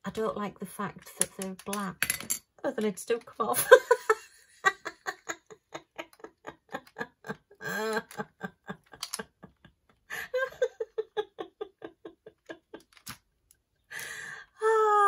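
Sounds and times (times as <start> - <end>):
woman laughing: 3.4 - 13.2
plastic lids clicking: 9.0 - 9.2.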